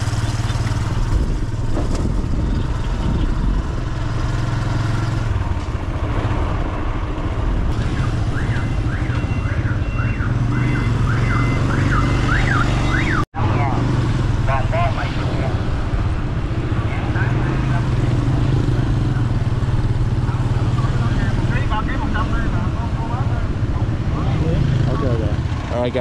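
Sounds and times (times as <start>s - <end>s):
motorbike engine running: 0.0s - 6.4s
wind noise: 0.6s - 4.6s
warbling electronic alarm tone: 7.8s - 13.2s.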